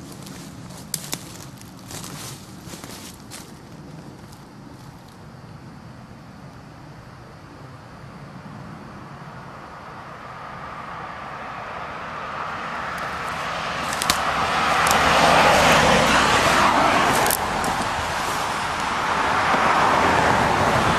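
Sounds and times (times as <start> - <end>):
vehicles passing on road: 0.0 - 20.9
sharp clicks: 13.9 - 15.1.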